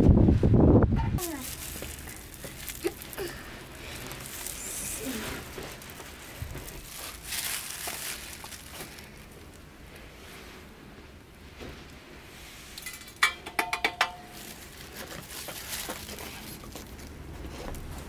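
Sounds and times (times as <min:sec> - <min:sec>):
plastic packets crinkling: 0:01.2 - 0:09.8, 0:14.2 - 0:18.0.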